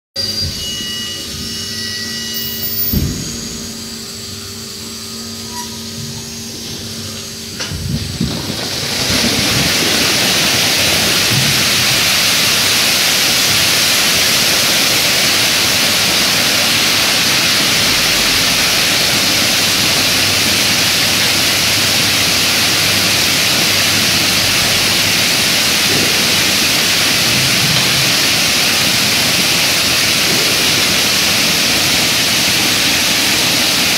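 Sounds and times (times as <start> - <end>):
thump: 2.8 - 3.6
water rushing across concrete: 7.3 - 33.9.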